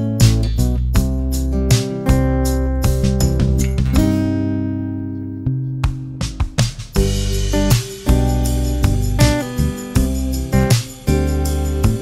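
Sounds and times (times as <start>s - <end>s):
low guitar note: 3.7s - 6.4s
acoustic guitar chord ringing: 3.7s - 12.0s.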